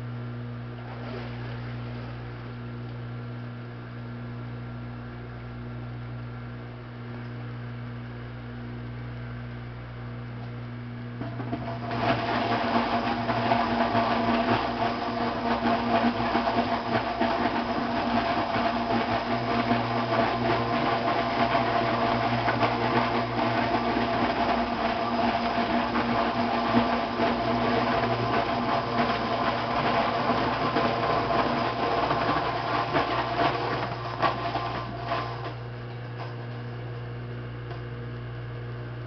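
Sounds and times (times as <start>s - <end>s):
fruit grinder chopping apples: 11.2s - 35.6s.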